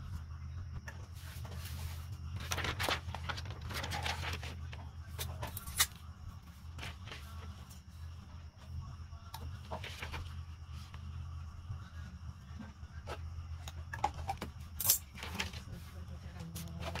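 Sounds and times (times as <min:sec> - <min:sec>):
steady low hum: 0:00.0 - 0:17.0
plastic film and fabric rustling: 0:01.1 - 0:06.0.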